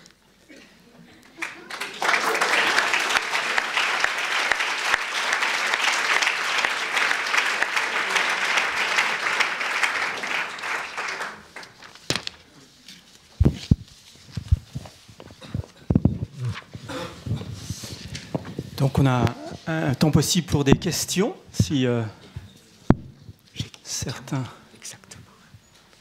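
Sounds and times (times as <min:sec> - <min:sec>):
audience applauding: 0:01.4 - 0:11.9.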